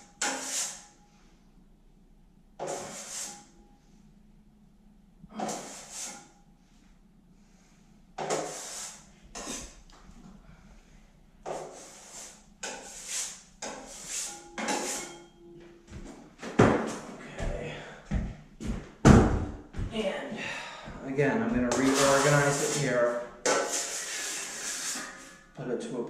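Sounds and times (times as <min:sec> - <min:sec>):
drywall knife scraping bucket: 0:00.2 - 0:00.9, 0:02.6 - 0:03.5, 0:05.4 - 0:06.3, 0:08.2 - 0:09.8, 0:11.5 - 0:15.2, 0:21.6 - 0:25.4.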